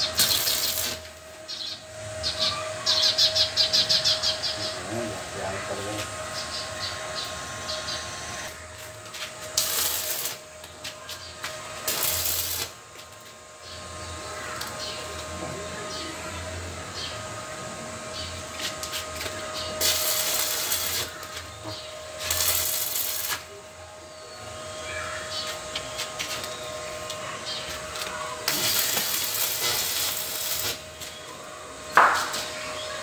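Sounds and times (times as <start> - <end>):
welding arc crackling and hissing: 0.0 - 23.8, 24.8 - 33.0
short sharp knock: 32.0 - 32.4.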